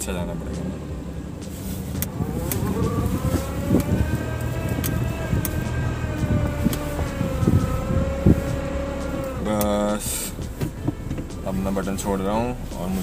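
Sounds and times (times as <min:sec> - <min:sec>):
car engine running: 0:00.0 - 0:13.0
reverse gear whine: 0:00.2 - 0:13.0.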